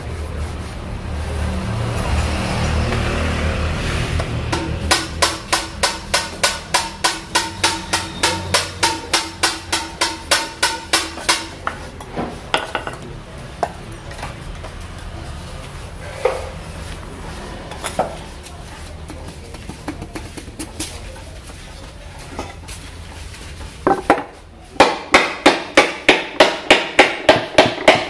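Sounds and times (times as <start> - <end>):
hammer striking metal: 4.5 - 11.8, 24.8 - 28.0.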